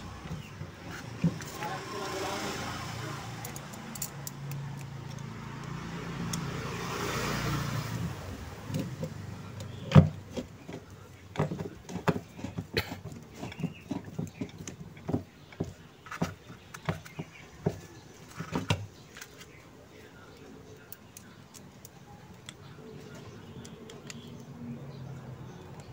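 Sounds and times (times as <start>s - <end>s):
screwdriver clicking and tapping metal: 3.4s - 6.5s.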